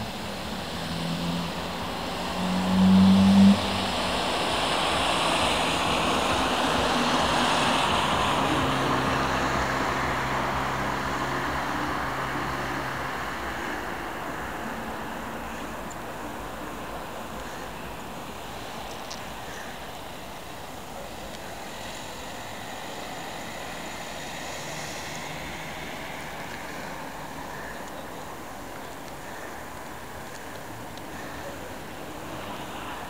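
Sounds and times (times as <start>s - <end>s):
loud low-pitched engine sound: 0.0s - 17.7s
vehicle passing by: 0.0s - 33.0s.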